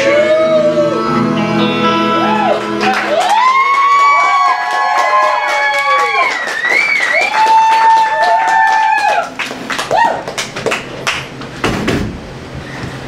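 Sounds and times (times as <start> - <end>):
short whoop: 2.2 - 10.3
audience clapping: 2.5 - 11.6.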